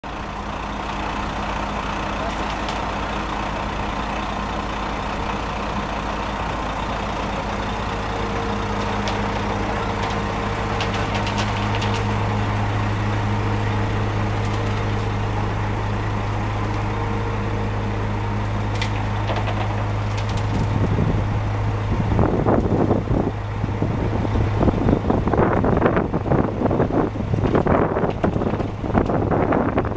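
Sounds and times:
diesel engine idling: 0.0 - 29.9
wind buffeting microphone: 18.7 - 29.9.

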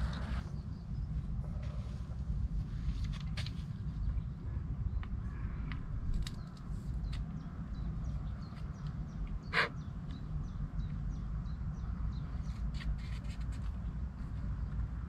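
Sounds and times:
steady low rumble: 0.0 - 15.0
small birds chirping: 3.0 - 15.0.

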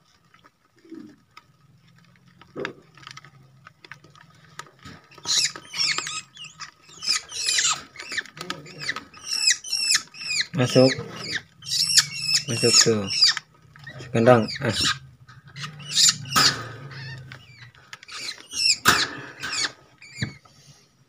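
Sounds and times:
bird chick squeaky chirps: 5.1 - 20.4.

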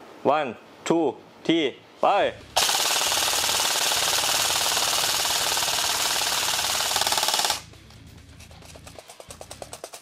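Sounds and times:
airsoft rifle full-auto burst: 2.6 - 7.6.

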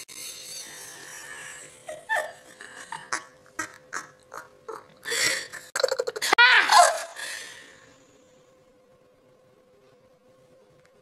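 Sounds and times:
person giggling: 1.6 - 7.2.

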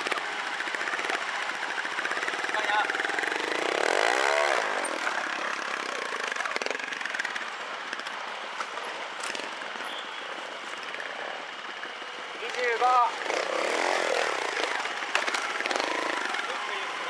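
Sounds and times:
motorcycle engine revving: 0.0 - 8.2, 9.2 - 9.8, 10.8 - 17.0.

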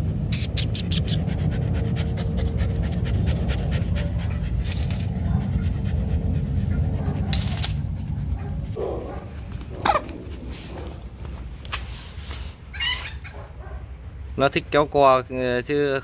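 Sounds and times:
puppy panting: 0.3 - 7.3, 8.0 - 11.3
low rumble: 1.2 - 11.7.

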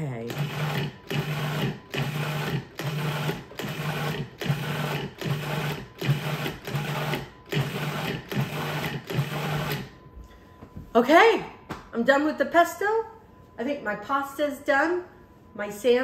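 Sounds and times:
food processor pulsing: 0.3 - 9.9.

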